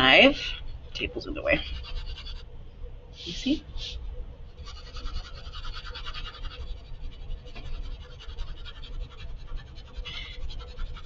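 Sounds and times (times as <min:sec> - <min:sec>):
pencil scratching on paper: 0:01.6 - 0:02.4, 0:04.6 - 0:11.0.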